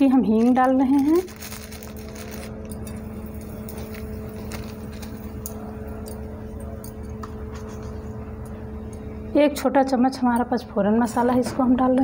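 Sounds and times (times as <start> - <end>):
spice crackling in hot oil: 0.0 - 6.4
steady background hum: 0.0 - 12.0.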